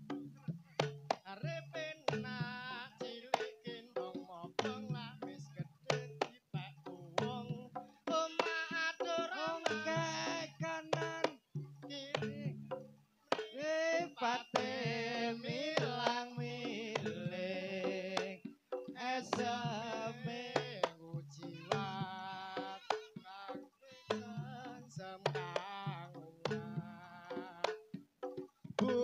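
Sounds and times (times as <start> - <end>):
person singing: 1.2 - 12.6, 13.4 - 27.8, 28.8 - 29.0.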